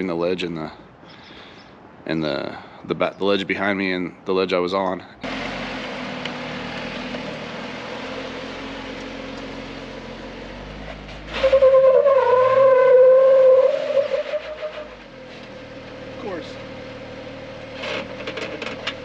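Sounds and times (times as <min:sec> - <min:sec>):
car engine running: 0:05.2 - 0:11.4, 0:14.9 - 0:19.0
loud wavering squeal: 0:11.3 - 0:15.0.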